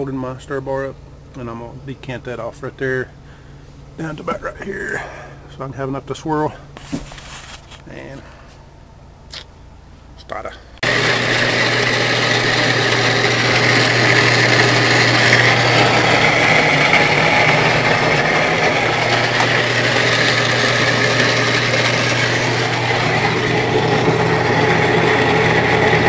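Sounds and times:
electric motor hum: 0:10.8 - 0:26.0.

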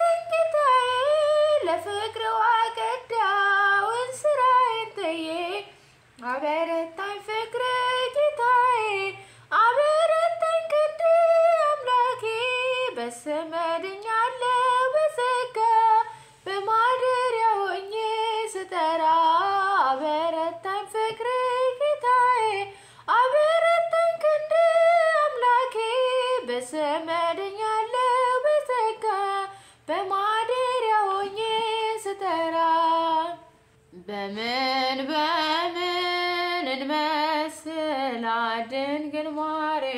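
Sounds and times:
woman singing a hymn unaccompanied: 0:00.0 - 0:39.9.

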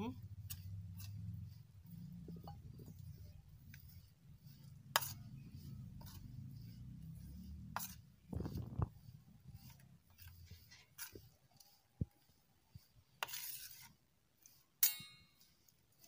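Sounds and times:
low steady rumble: 0:00.0 - 0:10.7
metal spoon scraping steel plate: 0:01.8 - 0:08.0, 0:09.6 - 0:11.2, 0:13.2 - 0:15.7.

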